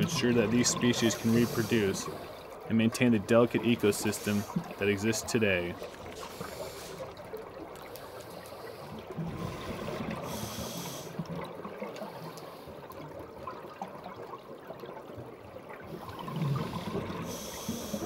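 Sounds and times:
underwater bubbling: 0:00.0 - 0:18.0
regulator hissing inhale: 0:01.1 - 0:02.5, 0:04.1 - 0:04.8, 0:06.2 - 0:07.2, 0:07.9 - 0:11.2, 0:16.6 - 0:18.0.

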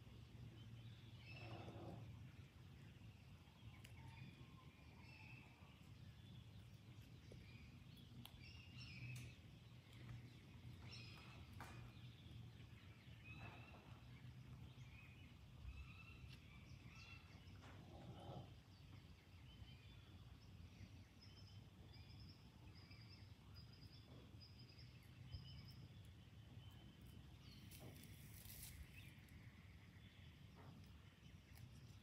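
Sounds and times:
low steady hum: 0:00.0 - 0:32.0.

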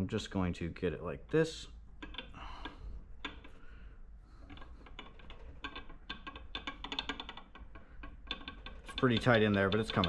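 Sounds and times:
small metallic gear clicks: 0:04.4 - 0:10.0.

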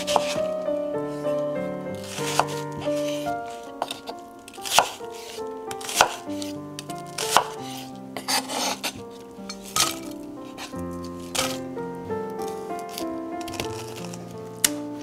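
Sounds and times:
knife slicing through onion: 0:00.0 - 0:00.4, 0:02.0 - 0:06.6, 0:07.2 - 0:09.0, 0:09.6 - 0:11.6.

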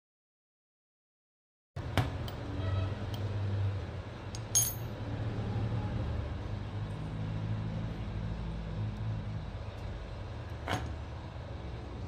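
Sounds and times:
small metal parts clinking: 0:04.4 - 0:05.0.

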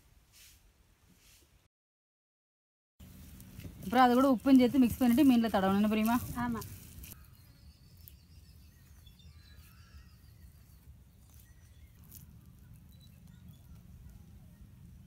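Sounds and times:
faint bird chirps: 0:07.1 - 0:15.0.

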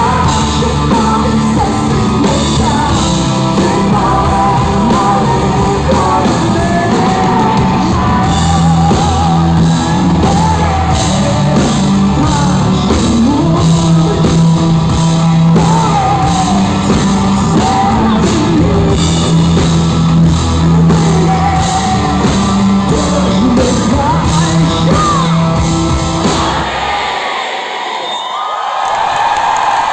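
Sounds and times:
woman singing lead vocal: 0:00.0 - 0:19.8, 0:20.6 - 0:25.4
live rock band playing: 0:00.0 - 0:27.4
crowd shouting: 0:26.2 - 0:29.9.

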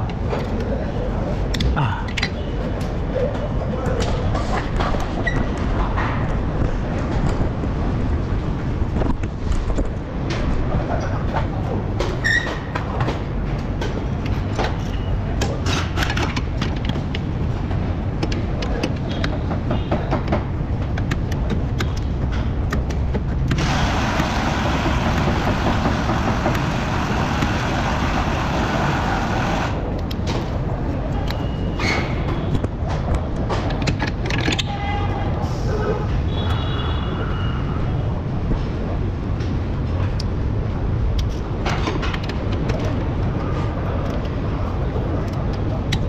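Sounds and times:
low workshop rumble: 0:00.0 - 0:36.5
hiss: 0:23.6 - 0:29.8.

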